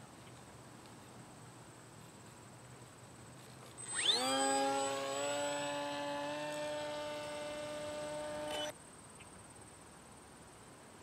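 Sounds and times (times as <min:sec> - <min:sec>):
model plane motor whine: 0:03.8 - 0:08.7.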